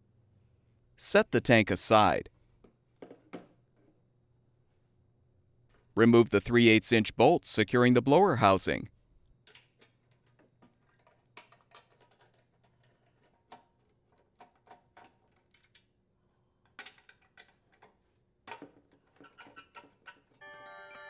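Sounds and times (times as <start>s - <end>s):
hand tools clicking and knocking: 9.4s - 15.9s.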